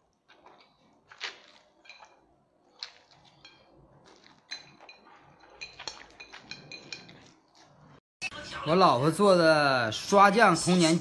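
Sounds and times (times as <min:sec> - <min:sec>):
noodles slurped and chewed: 0:00.0 - 0:08.0
chopsticks clinking on plate: 0:02.9 - 0:07.7.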